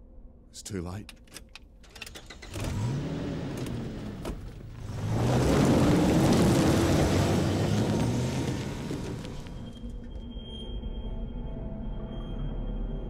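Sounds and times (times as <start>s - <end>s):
pickup truck engine accelerating: 2.3s - 9.8s
tyres crunching on gravel: 3.4s - 9.8s.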